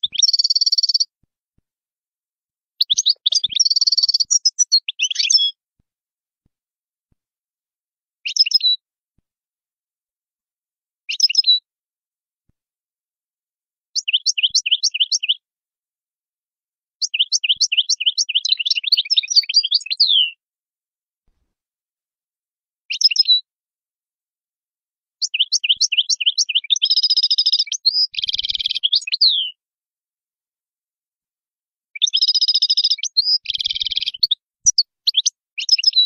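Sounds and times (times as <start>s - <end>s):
goldfinch singing: 0.0s - 1.1s, 2.8s - 5.6s, 8.2s - 8.8s, 11.1s - 11.6s, 14.0s - 15.4s, 17.0s - 20.4s, 22.9s - 23.4s, 25.2s - 29.6s, 32.0s - 36.0s.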